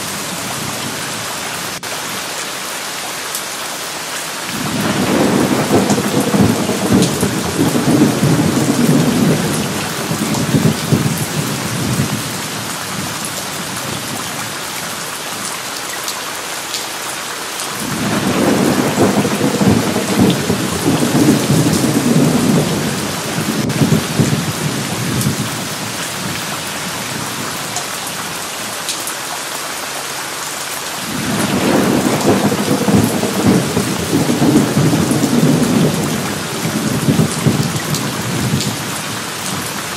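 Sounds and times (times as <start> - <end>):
steady rain: 0.0 - 39.9
rolling thunder: 4.6 - 13.1, 17.8 - 27.4, 31.1 - 39.7.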